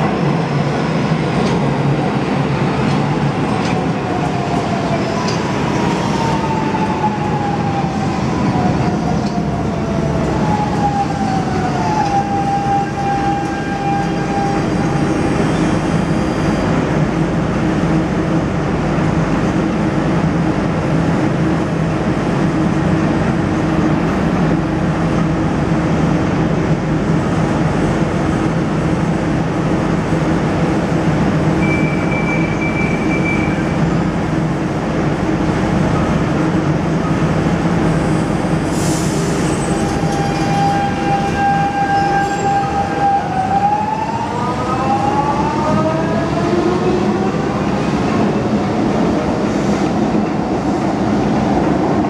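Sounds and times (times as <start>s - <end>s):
train hum at platform: 0.0s - 52.0s
high steady beep: 31.6s - 33.6s.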